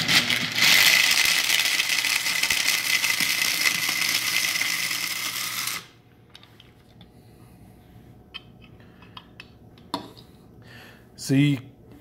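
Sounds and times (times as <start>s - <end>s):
coffee grinder grinding corn: 0.0s - 6.0s.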